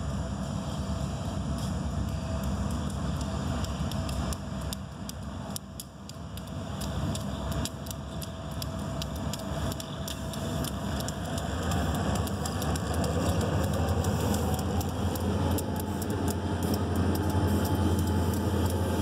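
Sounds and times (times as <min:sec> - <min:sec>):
diesel locomotive engines rumbling: 0:00.0 - 0:19.0.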